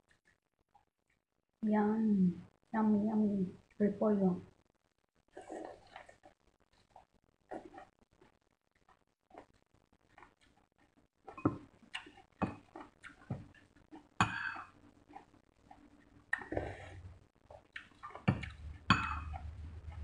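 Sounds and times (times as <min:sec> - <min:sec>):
utensils clinking on porcelain bowls: 0:18.6 - 0:19.5.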